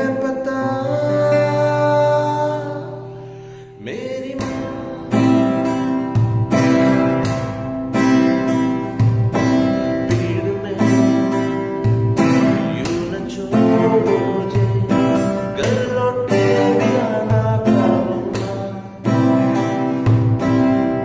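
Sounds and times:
man singing softly: 0:00.0 - 0:06.0, 0:09.6 - 0:19.6
acoustic guitar strummed: 0:00.0 - 0:21.0.

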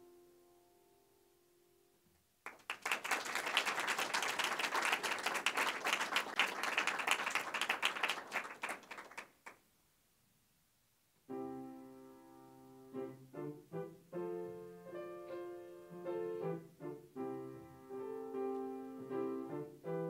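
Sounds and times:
small audience clapping: 0:02.4 - 0:09.7
piano notes: 0:11.3 - 0:20.0.

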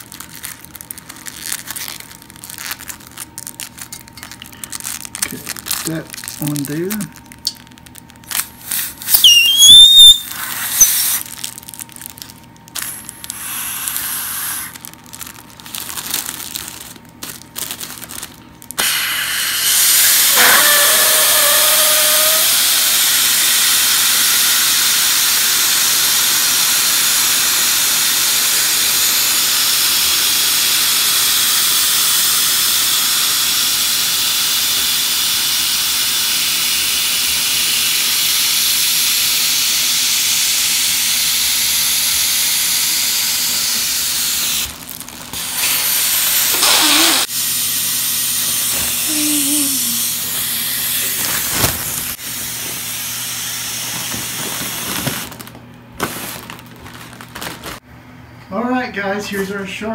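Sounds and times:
plastic crinkling: 0:00.0 - 0:19.0, 0:44.4 - 0:47.2, 0:48.7 - 0:52.9, 0:53.8 - 0:57.8
helium hissing from nozzle: 0:08.7 - 0:11.3, 0:12.8 - 0:14.8, 0:18.8 - 0:44.7, 0:45.6 - 0:47.4
brief falling squeal: 0:09.1 - 0:11.0.

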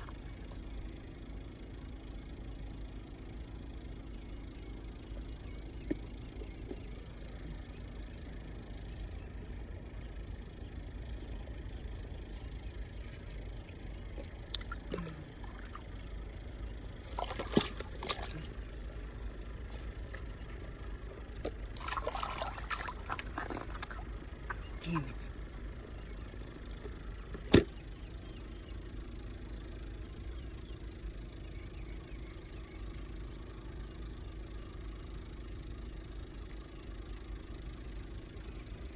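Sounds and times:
steady low rumble: 0:00.0 - 0:38.9
shallow water splashing: 0:14.1 - 0:16.3, 0:17.0 - 0:18.7, 0:19.7 - 0:24.8.

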